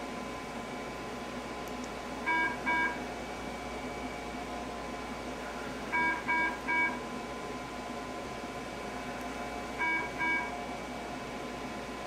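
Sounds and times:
short machine beeps: 0:02.3 - 0:03.0, 0:06.0 - 0:07.0, 0:09.8 - 0:10.5.

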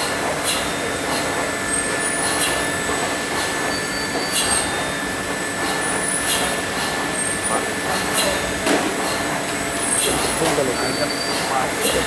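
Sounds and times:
machine high whine: 0:09.5 - 0:12.0.

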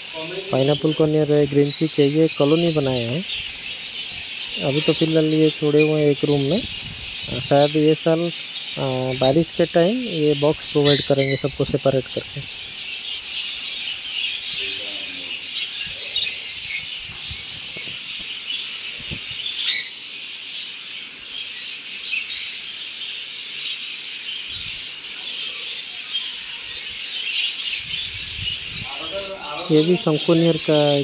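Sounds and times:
parrots chirping and squawking: 0:00.0 - 0:20.3, 0:21.0 - 0:31.0.

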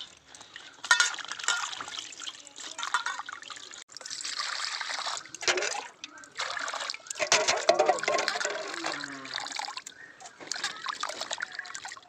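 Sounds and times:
water pouring into bowl: 0:00.6 - 0:09.9
hands splashing greens in water: 0:04.1 - 0:12.0.

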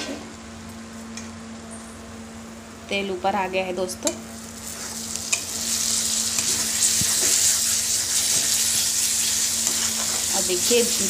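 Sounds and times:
paste sizzling in hot oil: 0:04.4 - 0:11.0.

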